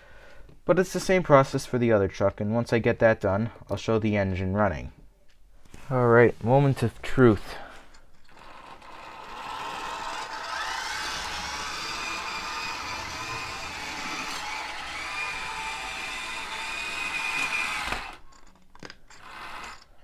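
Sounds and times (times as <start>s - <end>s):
model train motor whining: 8.3s - 18.2s, 19.1s - 19.9s.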